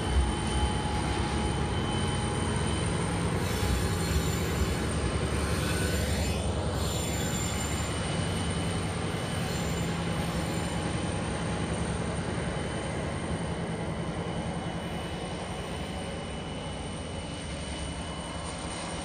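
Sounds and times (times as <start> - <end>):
locomotive engine drone: 0.0 - 19.0
faint wheel squeal: 0.3 - 11.2, 14.3 - 16.7.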